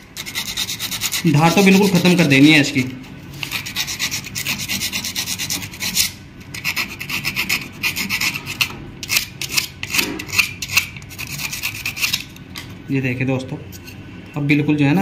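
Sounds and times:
sandpaper rasping on steel: 0.2s - 2.5s, 3.4s - 12.2s.

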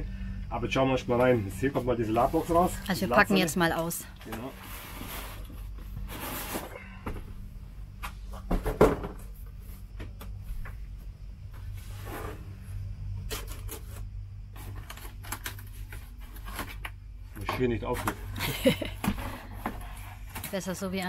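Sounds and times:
low steady hum: 0.0s - 21.0s
cardboard scraping and rustling: 4.3s - 6.8s, 11.7s - 12.5s, 13.3s - 18.3s.

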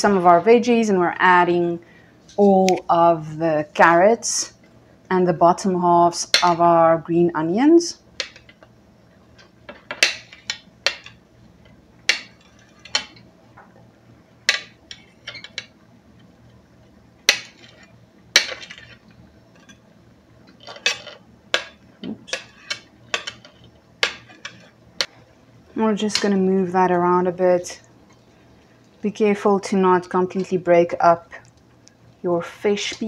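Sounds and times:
knife scraping cutting board: 22.3s - 24.8s.

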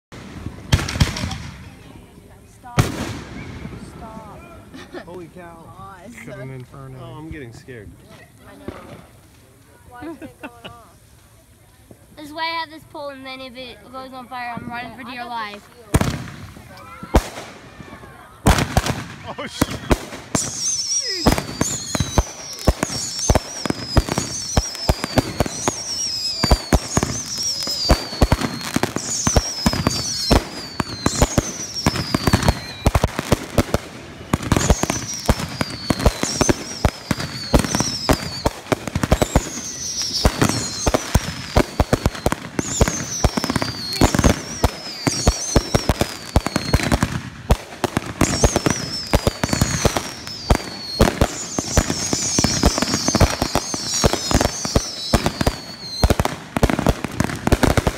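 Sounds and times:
fireworks pops and crackling: 0.1s - 57.9s
high whistle falling in pitch: 19.7s - 33.1s.

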